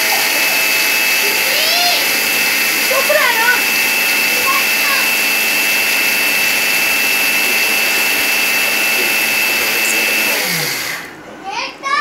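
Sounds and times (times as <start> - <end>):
mixer grinder whining: 0.0 - 11.2.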